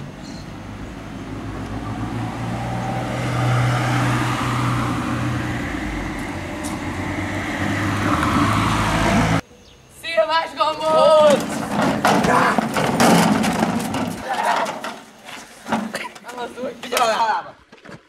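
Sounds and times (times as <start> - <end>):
car passing by: 0.0 - 9.4.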